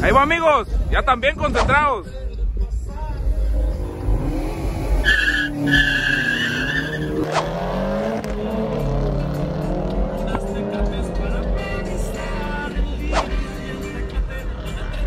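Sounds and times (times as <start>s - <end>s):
car engines revving hard: 3.2s - 15.0s
tyres squealing: 5.0s - 7.3s.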